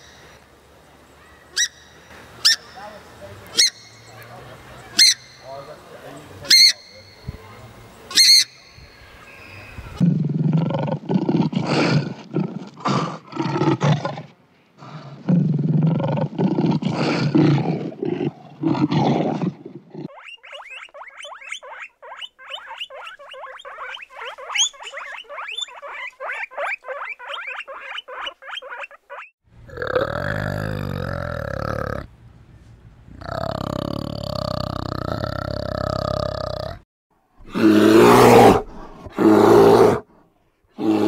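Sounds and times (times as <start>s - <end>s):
animal high chirps: 4.9s - 5.5s, 6.5s - 7.3s, 20.1s - 29.3s
lion roaring: 10.0s - 20.1s, 29.6s - 32.1s, 33.2s - 36.8s, 37.4s - 40.1s, 40.8s - 41.0s.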